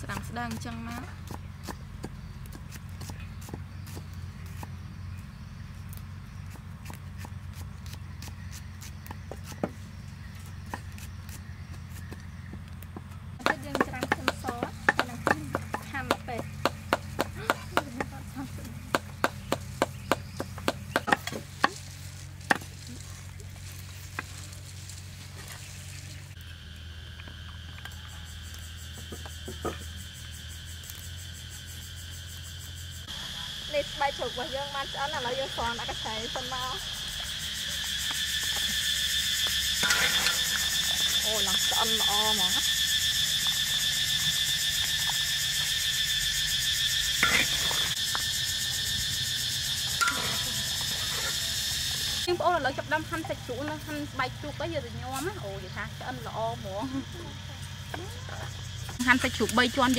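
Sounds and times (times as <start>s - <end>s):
cleavers chopping on wooden blocks: 0.0s - 4.8s, 6.5s - 9.9s, 10.6s - 18.2s, 18.8s - 21.8s
high insect chorus: 0.0s - 59.9s
low hum: 14.7s - 59.9s
high-pitched buzz: 33.0s - 53.0s.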